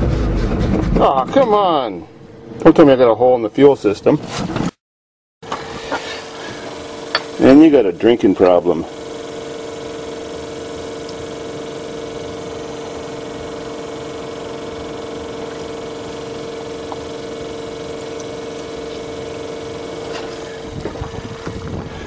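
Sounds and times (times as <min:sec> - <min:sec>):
truck engine idling: 0:05.8 - 0:22.0.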